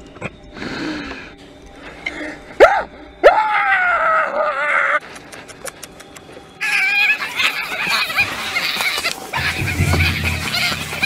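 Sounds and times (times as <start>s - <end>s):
high wavering shriek: 9.4s - 11.0s.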